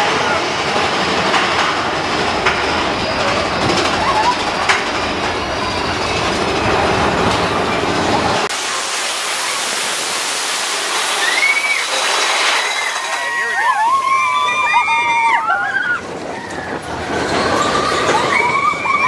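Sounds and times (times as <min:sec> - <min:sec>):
roller coaster rumbling on steel track: 0:00.0 - 0:19.0
steady rushing hiss: 0:04.4 - 0:14.8.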